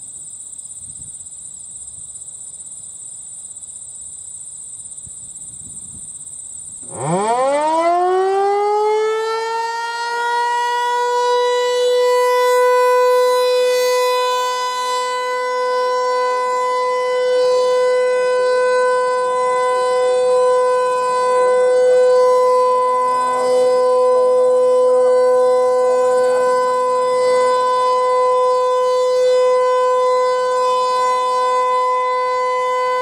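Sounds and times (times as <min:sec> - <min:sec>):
warning siren winding up: 0:06.8 - 0:33.0.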